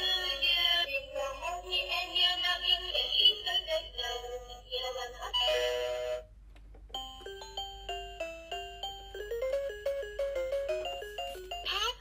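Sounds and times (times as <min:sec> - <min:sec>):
toy beeping melody: 0:07.0 - 0:11.7.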